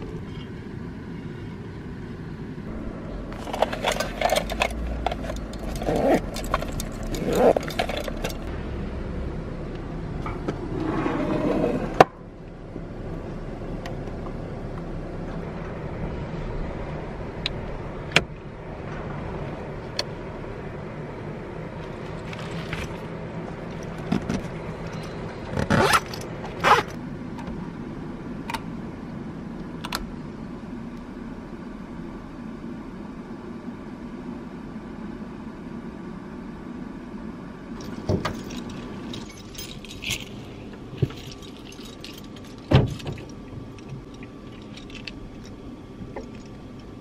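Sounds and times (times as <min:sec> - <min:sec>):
steady low hum: 0:00.0 - 0:47.0
zipper on fabric bag: 0:07.1 - 0:07.7.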